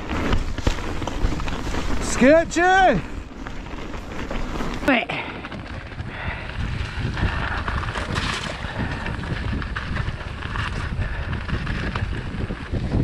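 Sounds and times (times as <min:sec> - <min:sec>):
bike knocks and rattles: 0:00.0 - 0:13.0
bike tyres rumbling on dirt: 0:00.0 - 0:13.0
wind on microphone: 0:04.6 - 0:13.0.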